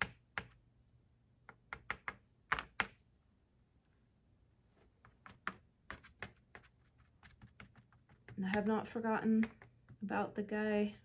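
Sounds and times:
sponge brush tapping paint on wood: 1.4 - 3.0, 5.0 - 8.8.

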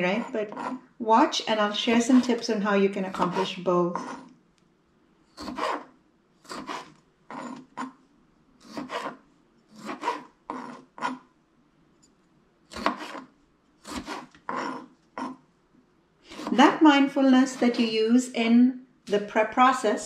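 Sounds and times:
knife cutting on plastic board: 0.2 - 0.8, 3.1 - 4.3, 5.4 - 8.0, 8.6 - 11.3, 12.7 - 15.4, 16.3 - 16.7.

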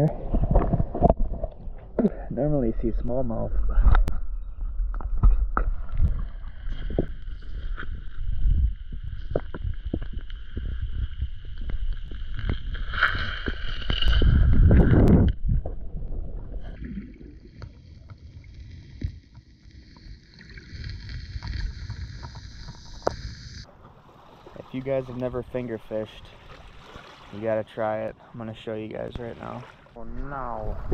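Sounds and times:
water sloshing and splashing: 4.9 - 30.0
rush of water: 24.0 - 27.9.

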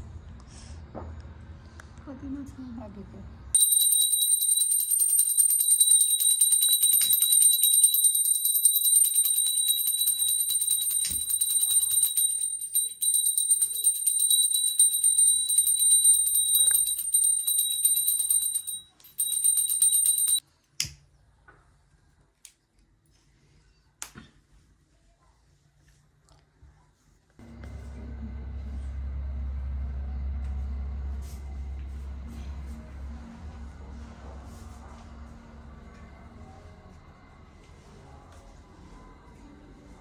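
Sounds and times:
hand bell ringing fast: 3.6 - 20.4.

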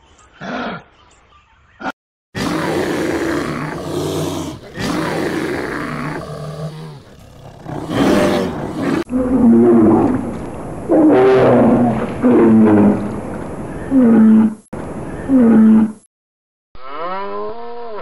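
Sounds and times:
bear growling and roaring: 2.4 - 13.2, 13.9 - 14.6.

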